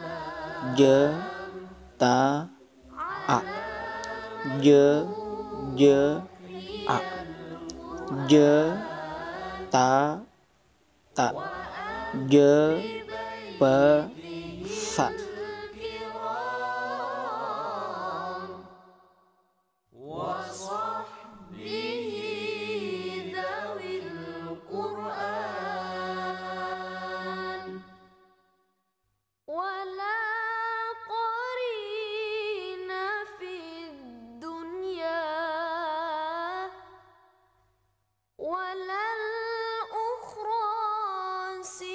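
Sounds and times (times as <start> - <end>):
person chanting melodically: 0.0 - 10.3, 11.2 - 18.4.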